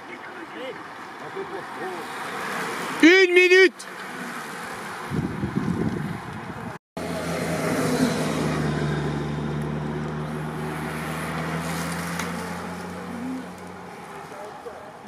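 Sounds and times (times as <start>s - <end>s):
road and wind noise: 0.0s - 15.0s
vehicle engine humming: 0.0s - 15.0s
wind rumbling on microphone: 5.0s - 6.8s.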